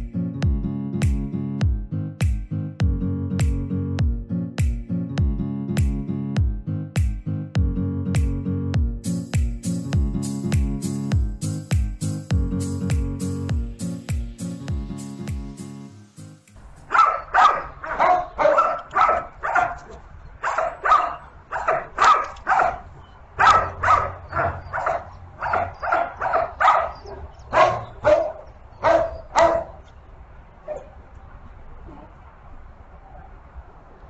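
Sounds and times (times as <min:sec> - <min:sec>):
dog barking: 0:16.9 - 0:29.8, 0:30.7 - 0:30.9.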